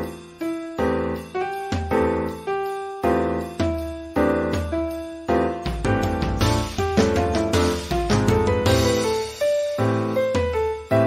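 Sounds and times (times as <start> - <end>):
background music with bass line: 3.4 - 11.0.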